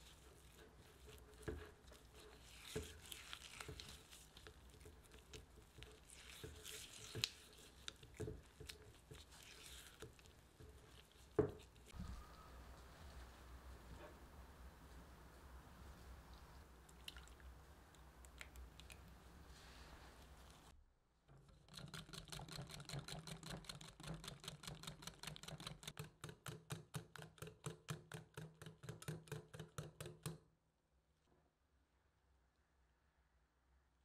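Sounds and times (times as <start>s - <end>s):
whisk beating batter in glass bowl: 0.0s - 11.9s, 21.6s - 30.4s.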